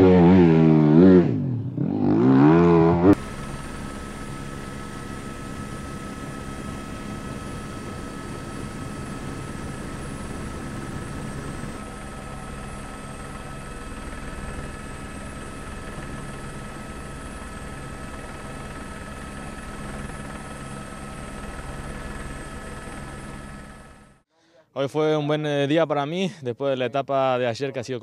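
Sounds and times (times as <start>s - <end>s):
helicopter rotor rumble: 3.2s - 24.2s
helicopter turbine whine: 3.2s - 24.2s.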